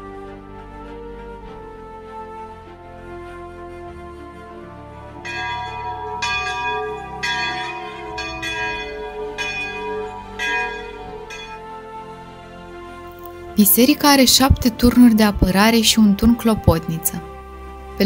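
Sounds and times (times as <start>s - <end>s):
church bell ringing: 5.0s - 12.4s.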